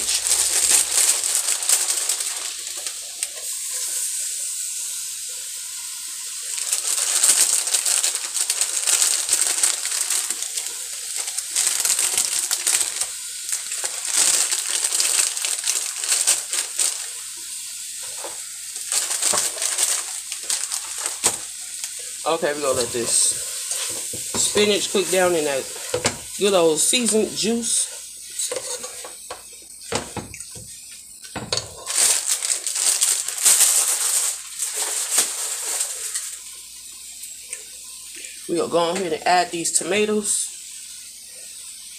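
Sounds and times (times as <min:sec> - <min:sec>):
plastic bag crinkling: 0:00.0 - 0:03.9, 0:06.3 - 0:29.0, 0:31.4 - 0:36.4
juice sizzling in a pot: 0:00.0 - 0:41.9.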